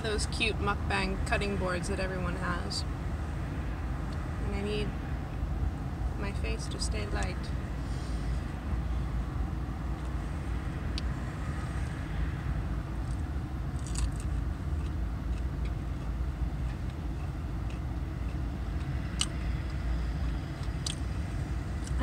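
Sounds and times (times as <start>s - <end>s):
low vehicle rumble: 0.0s - 22.0s
crunchy food eating clicks: 13.0s - 22.0s.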